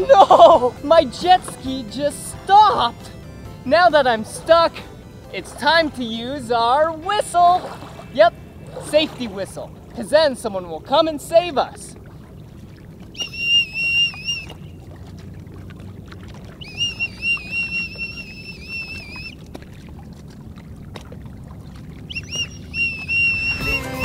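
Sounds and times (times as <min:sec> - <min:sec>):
shrill warbling whistle blasts: 0:13.1 - 0:14.7, 0:16.6 - 0:19.4, 0:22.1 - 0:24.0.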